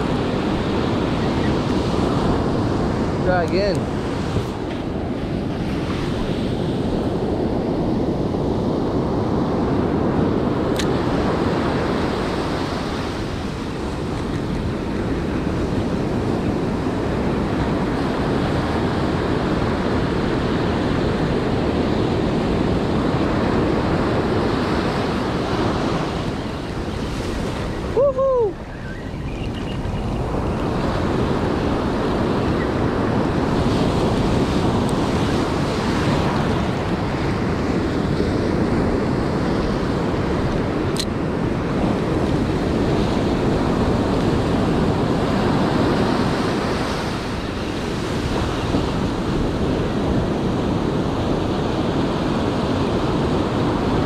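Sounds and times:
ocean surf breaking: 0.0 - 54.0
wind buffeting microphone: 0.0 - 54.0.

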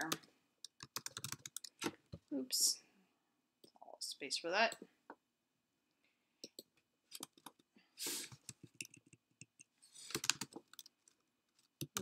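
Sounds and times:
keyboard and mouse clicks: 0.0 - 2.2, 6.4 - 7.7, 8.3 - 12.0.

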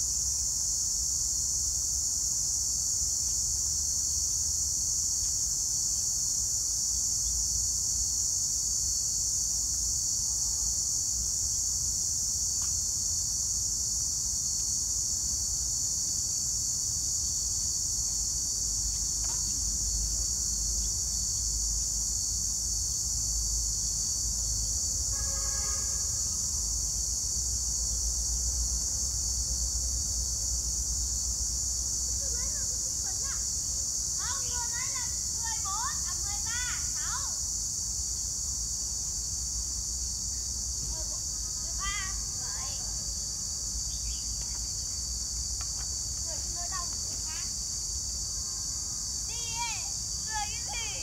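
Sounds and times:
high-pitched insect chorus: 0.0 - 51.0.

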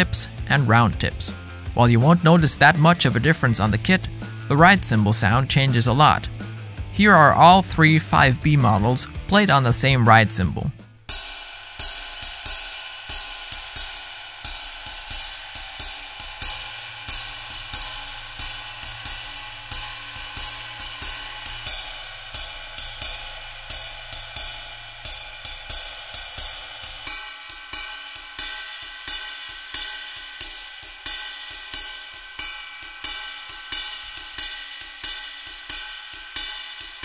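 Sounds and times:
ride cymbal played with drumsticks: 11.0 - 37.0.

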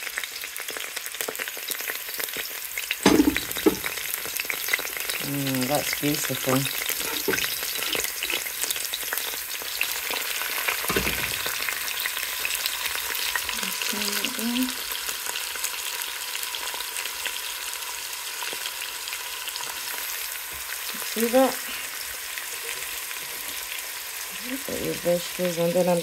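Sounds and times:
vegetables sizzling in oil: 0.0 - 26.0
dull knock: 3.1 - 3.9.

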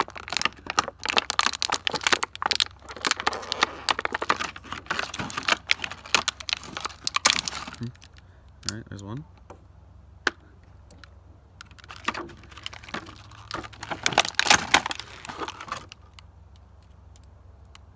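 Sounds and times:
plastic packaging crinkling: 0.0 - 8.2, 11.6 - 16.2.

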